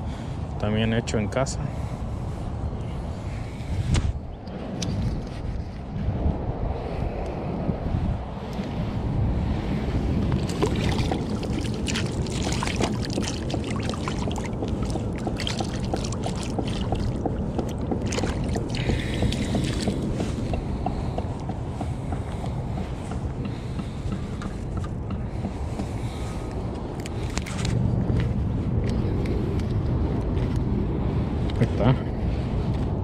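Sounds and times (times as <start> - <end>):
wind buffeting microphone: 0.0 - 33.0
footsteps on wet sand: 10.0 - 31.8
gear handling clicks and scuffs: 26.4 - 30.7.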